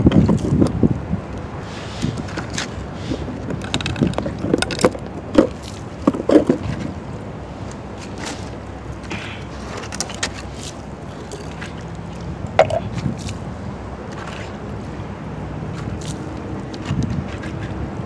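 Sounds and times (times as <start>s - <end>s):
wind buffeting microphone: 0.0s - 18.0s
plastic pipes and tools knocking: 3.4s - 6.8s, 12.6s - 12.9s.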